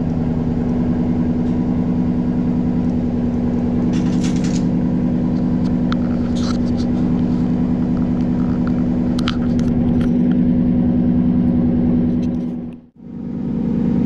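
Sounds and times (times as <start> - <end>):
engine idling: 0.0 - 14.0.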